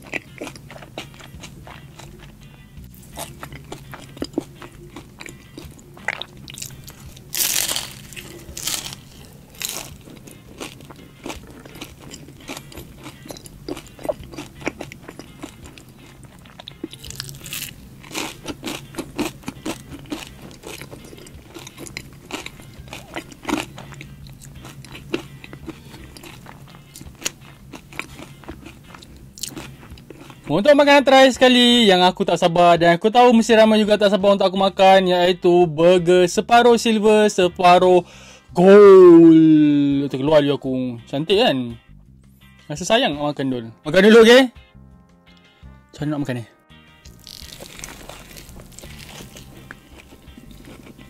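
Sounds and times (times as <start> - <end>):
chewing: 0.0 - 30.5, 47.1 - 51.0
crunchy bites into pastry: 3.1 - 30.4, 47.1 - 51.0.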